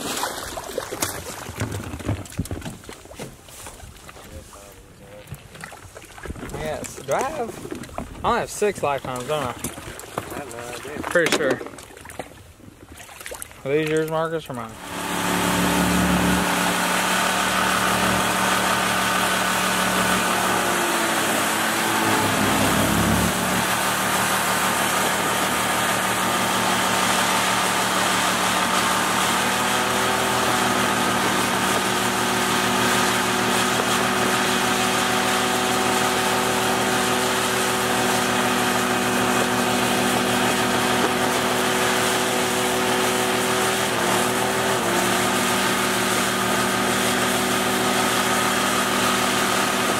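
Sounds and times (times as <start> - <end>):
water rushing: 0.0 - 1.7, 13.2 - 49.9
wind: 0.0 - 49.9
boat motor running: 14.6 - 49.9.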